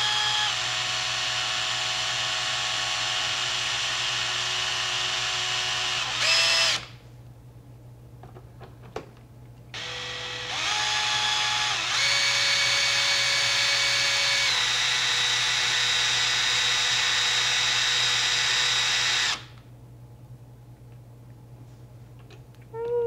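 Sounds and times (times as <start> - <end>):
cordless drill motor whine: 0.0 - 7.0, 9.8 - 19.6.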